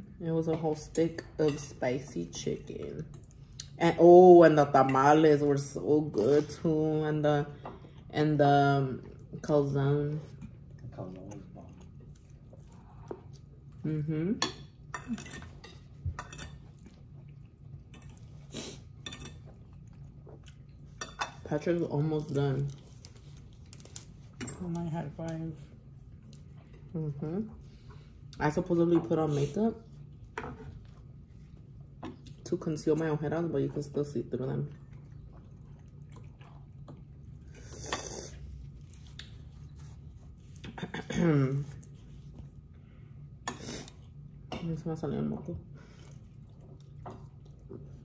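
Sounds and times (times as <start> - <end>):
low steady hum: 0.0 - 48.0
wet eating sounds: 10.1 - 24.4, 25.1 - 28.4, 29.3 - 48.0.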